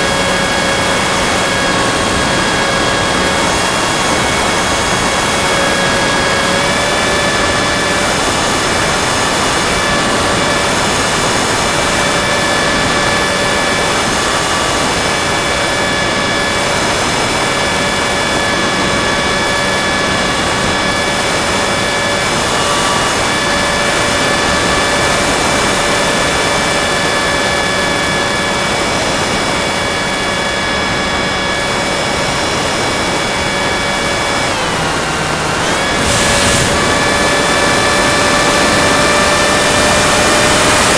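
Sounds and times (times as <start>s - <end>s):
electric motor whine: 0.0s - 40.9s
steady rushing air: 32.0s - 40.1s.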